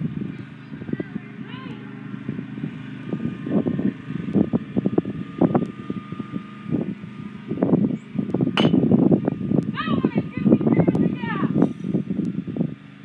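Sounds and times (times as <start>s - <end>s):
small engine running: 0.0s - 13.0s
wind buffeting microphone: 0.0s - 13.0s
bat hitting baseball: 8.6s - 8.9s.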